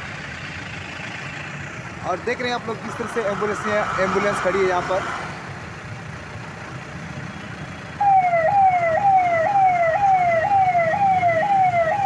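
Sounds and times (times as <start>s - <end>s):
man imitating a siren: 8.0s - 12.0s.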